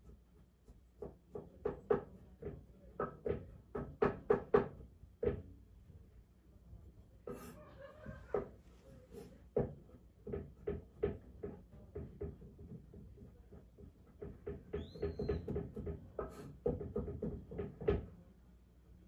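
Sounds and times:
knife chopping on cutting board: 0.0 - 5.4, 9.6 - 18.0.

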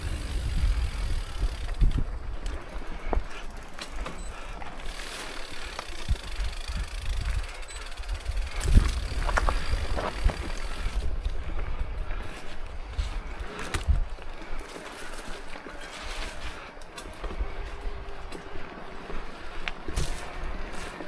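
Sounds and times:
wind rumble on microphone: 0.0 - 3.4, 6.0 - 14.6
bike rattling and clicking: 0.0 - 21.0
tyres on loose dirt: 0.0 - 21.0.

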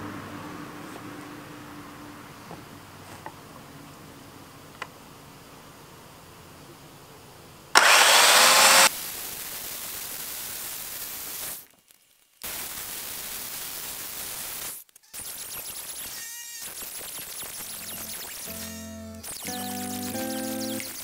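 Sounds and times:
electric chainsaw cutting log: 7.8 - 8.9.

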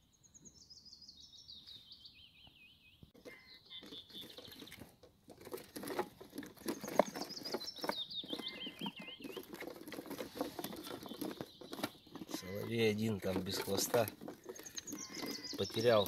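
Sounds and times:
bird warbling song: 0.0 - 4.9, 6.4 - 16.0
birds scratching inside boxes: 3.2 - 16.0.

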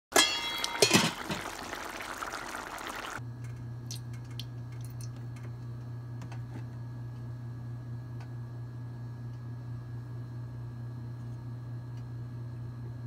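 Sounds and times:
gravy bubbling in a pan: 0.6 - 3.2.

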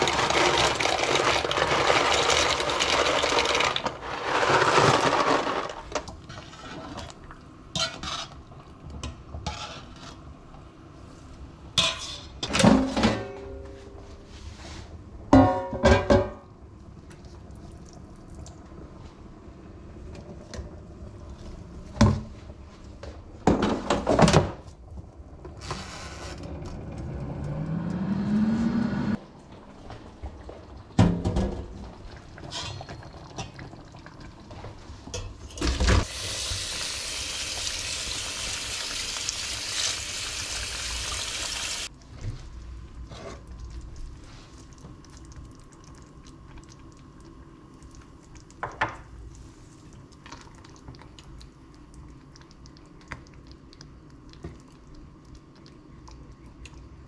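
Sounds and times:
pot filling with tap water: 0.0 - 7.4, 30.1 - 41.9
water running into sink: 35.8 - 41.9.

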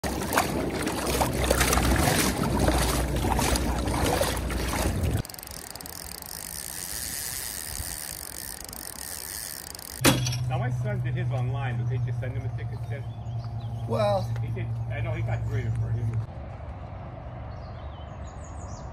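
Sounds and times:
water splashing into plastic tote: 0.0 - 5.2
river flowing: 0.0 - 10.0.

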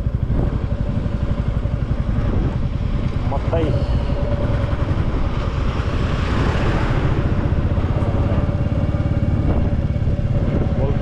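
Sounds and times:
motorcycle engine running: 0.0 - 11.0
rushing noise: 2.0 - 10.8.

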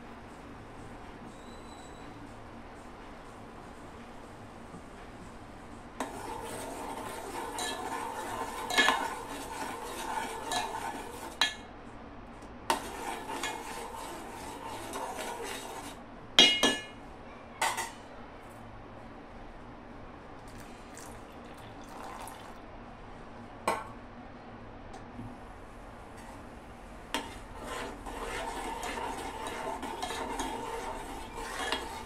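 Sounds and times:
metal spoon stirring in a pot: 6.0 - 11.6, 12.7 - 17.0, 27.1 - 32.0
spoon clanking against pot: 7.0 - 11.7, 16.4 - 17.0, 17.6 - 18.0.

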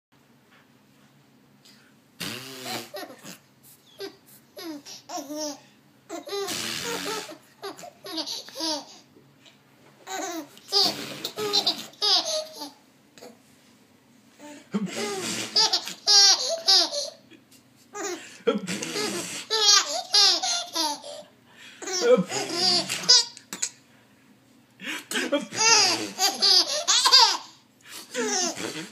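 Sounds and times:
baby laughing: 2.6 - 3.4, 4.0 - 9.0, 10.0 - 13.3, 14.8 - 17.2, 17.9 - 23.8, 25.4 - 28.9.

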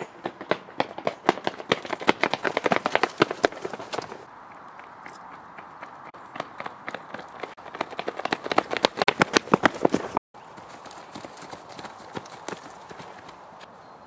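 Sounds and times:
running footsteps on brick paving: 0.0 - 13.4
feet running through dry leaves: 1.4 - 4.3, 6.6 - 13.4.

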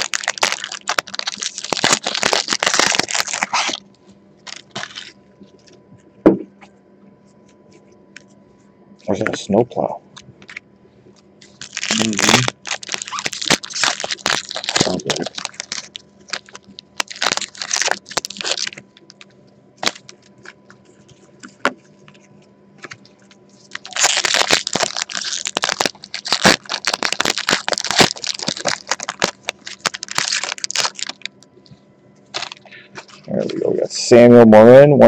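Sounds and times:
card pack wrapper crinkling: 0.0 - 3.8, 4.4 - 5.2, 11.4 - 20.6, 21.4 - 31.4, 32.3 - 33.7.

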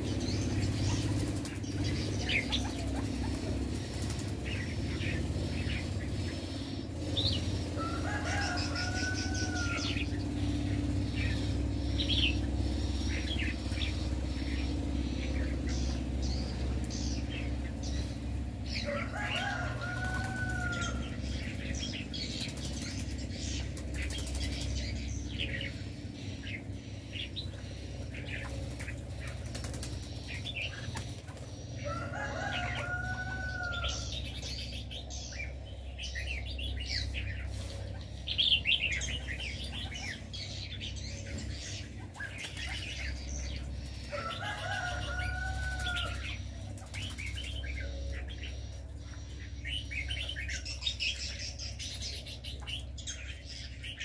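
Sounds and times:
wing flutters: 0.0 - 34.5, 41.3 - 47.8
birds chirping and twittering: 0.0 - 54.0
rising and falling bird call: 0.0 - 54.0
steady low rumble: 0.0 - 54.0.

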